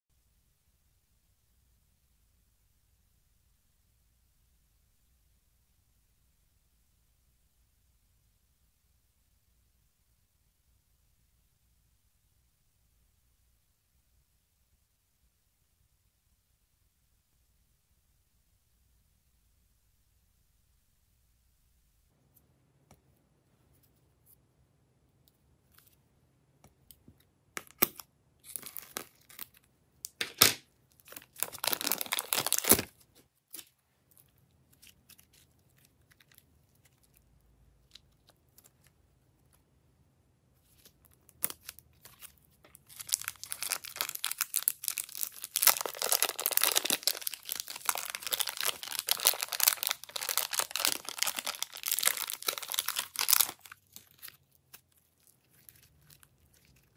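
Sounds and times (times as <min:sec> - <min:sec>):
plastic bags crinkling: 0:31.0 - 0:33.0, 0:42.2 - 0:54.4.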